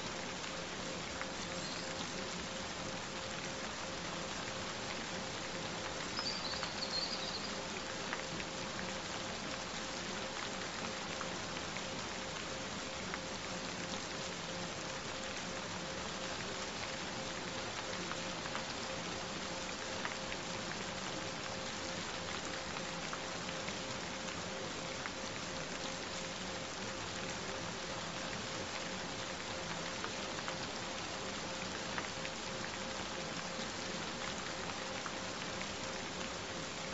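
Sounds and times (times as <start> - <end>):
steady rain: 0.0 - 36.9.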